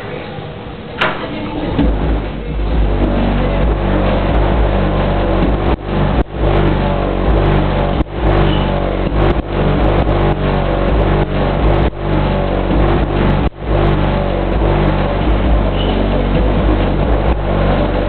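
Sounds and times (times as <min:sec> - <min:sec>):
heavy overloaded bass rumble: 0:00.8 - 0:18.0.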